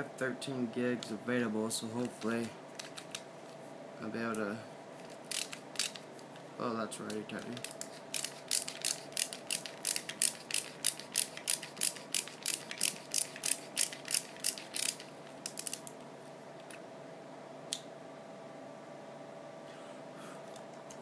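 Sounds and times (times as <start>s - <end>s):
ratcheting screwdriver clicking: 5.3s - 6.0s, 7.1s - 15.9s.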